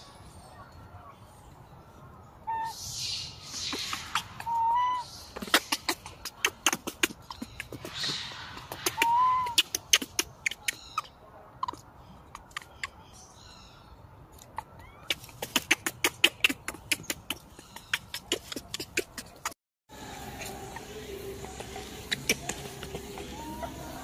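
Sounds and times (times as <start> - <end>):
infant monkey squealing: 2.5 - 2.8, 3.5 - 13.0, 22.0 - 24.0
sharp clicks and smacks: 5.4 - 10.9, 11.6 - 13.0, 14.3 - 19.6
steady hum: 19.9 - 24.0.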